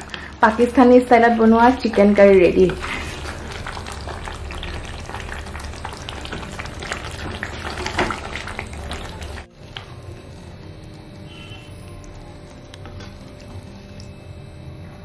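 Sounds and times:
curry sizzling in a pan: 0:00.0 - 0:14.3
wooden spatula stirring: 0:01.6 - 0:10.0.

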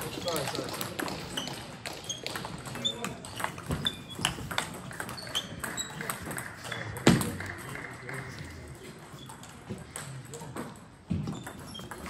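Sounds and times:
table tennis ball clicking: 0:00.3 - 0:08.0.

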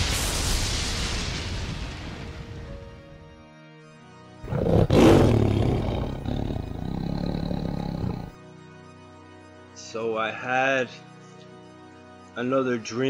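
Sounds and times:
background music with held notes: 0:02.6 - 0:04.4, 0:08.3 - 0:13.0
loud roar: 0:04.5 - 0:08.3.

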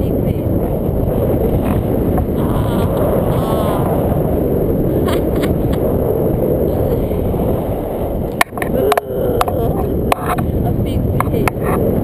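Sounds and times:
wind rushing over microphone: 0:00.0 - 0:12.0
faint voice: 0:08.7 - 0:10.0.

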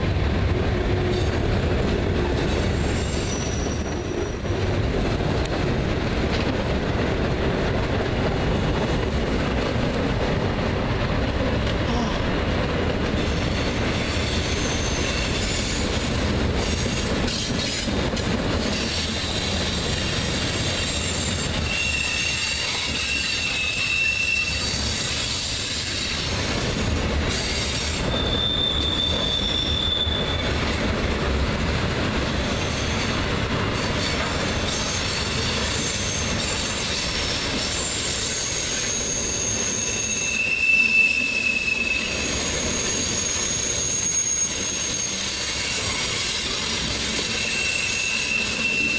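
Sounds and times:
train wheels rumbling on rail: 0:00.0 - 0:48.9
wheel squeals: 0:02.5 - 0:04.9, 0:13.4 - 0:17.9, 0:18.6 - 0:26.2, 0:27.3 - 0:30.8, 0:33.8 - 0:48.9.

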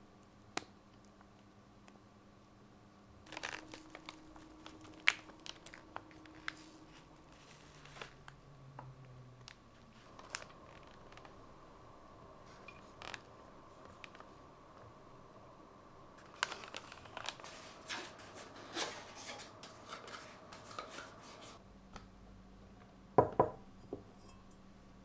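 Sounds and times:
plastic bags crinkling: 0:03.3 - 0:08.4, 0:09.4 - 0:11.4, 0:12.4 - 0:14.4, 0:16.2 - 0:20.2.

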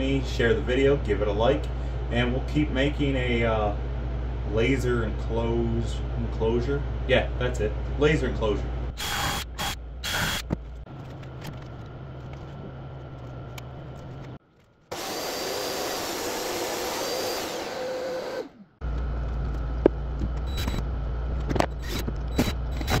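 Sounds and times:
steady low hum: 0:00.0 - 0:23.0
power tool running: 0:14.9 - 0:18.8.

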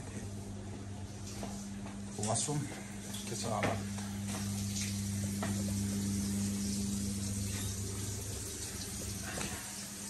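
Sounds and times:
steady low hum: 0:00.0 - 0:10.0
tap running into washbasin: 0:03.6 - 0:10.0.

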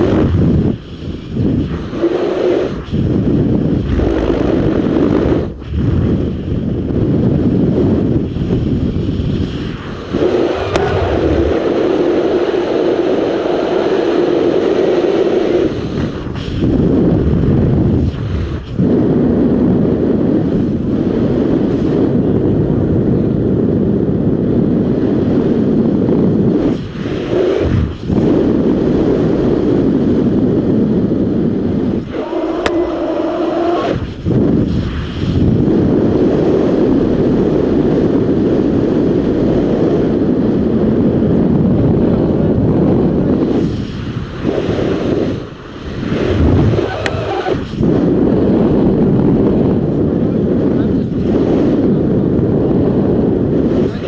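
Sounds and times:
low hum: 0:00.0 - 0:21.4, 0:31.4 - 0:35.8
wind buffeting microphone: 0:00.0 - 0:54.0.

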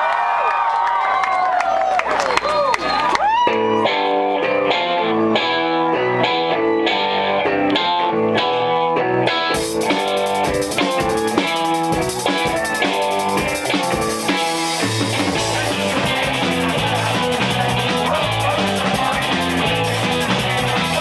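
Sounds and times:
electric guitar riff: 0:03.5 - 0:21.0
drum beat: 0:09.5 - 0:21.0.

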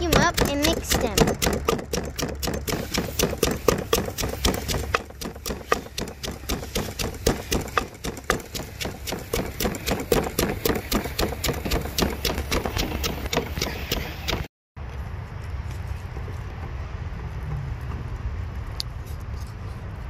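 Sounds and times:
wooden pestle pounding in mortar: 0:00.0 - 0:14.5.

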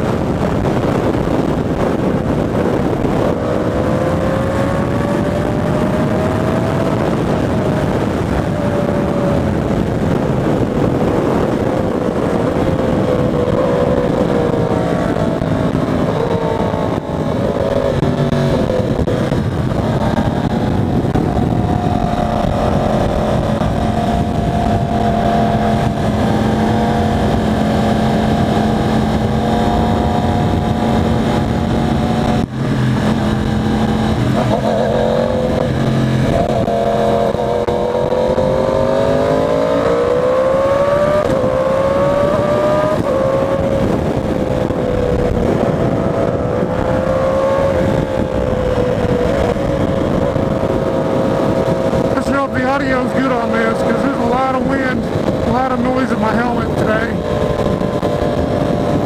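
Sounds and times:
motorcycle engine: 0:00.0 - 0:59.0.

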